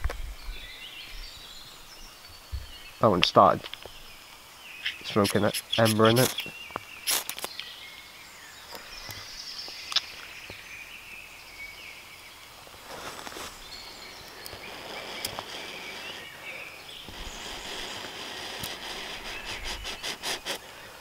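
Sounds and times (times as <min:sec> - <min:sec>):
birds singing: 0:00.0 - 0:21.0
soft puffs of breath: 0:14.5 - 0:21.0.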